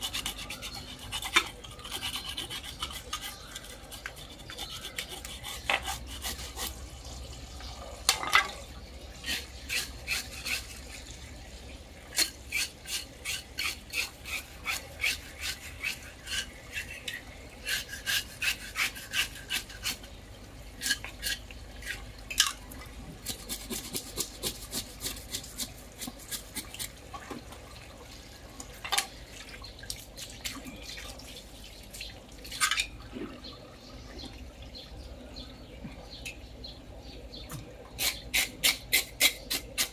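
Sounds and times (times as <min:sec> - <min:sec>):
knife scraping fish scales: 0:00.0 - 0:06.8, 0:09.2 - 0:10.9, 0:12.1 - 0:20.2, 0:20.8 - 0:22.0, 0:23.2 - 0:27.0, 0:38.0 - 0:39.9.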